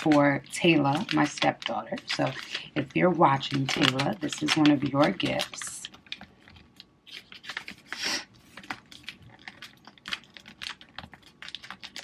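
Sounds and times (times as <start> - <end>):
paper rustling: 0.0 - 12.0
paper folding clicks and taps: 3.5 - 12.0.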